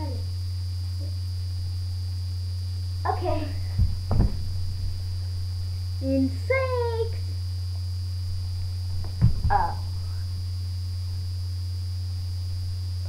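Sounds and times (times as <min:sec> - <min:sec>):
low electrical hum: 0:00.0 - 0:13.0
thump on floor mat: 0:03.7 - 0:05.0, 0:09.0 - 0:09.8.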